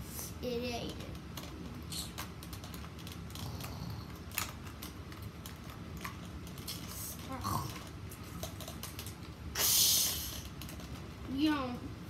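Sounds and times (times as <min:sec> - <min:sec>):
toy handling clicks and rubbing: 0:00.8 - 0:09.3.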